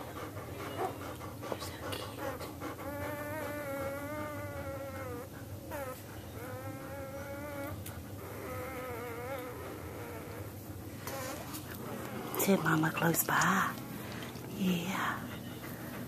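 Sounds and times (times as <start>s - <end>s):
dog whining: 2.0s - 13.6s.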